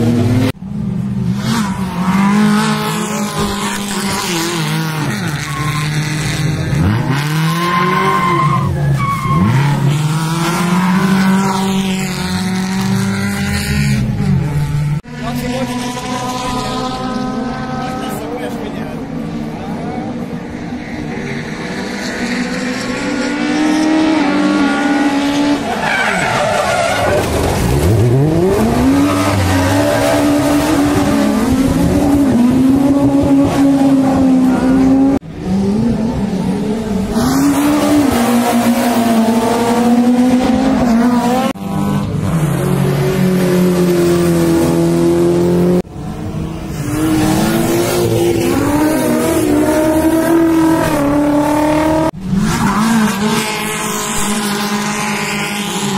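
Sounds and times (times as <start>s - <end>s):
race car engines revving: 0.0s - 55.9s
tyre squeal: 5.0s - 6.4s, 7.4s - 10.1s.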